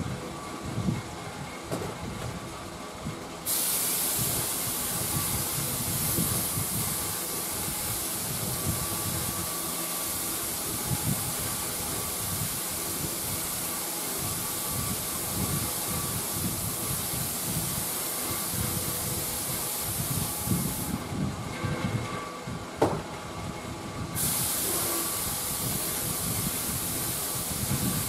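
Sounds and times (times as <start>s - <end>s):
steady hiss of spray: 3.4s - 21.1s, 24.2s - 28.0s.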